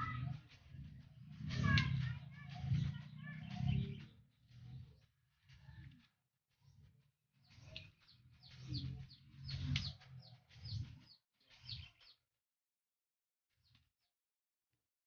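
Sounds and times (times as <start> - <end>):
small birds chirping: 0.0 - 6.0, 6.6 - 12.2.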